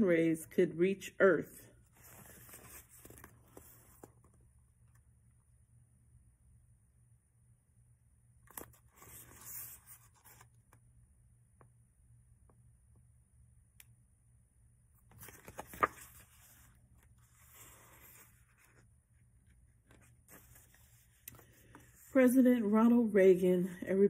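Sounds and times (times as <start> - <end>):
book pages rustling: 1.8 - 5.0, 8.5 - 10.8, 15.0 - 22.2.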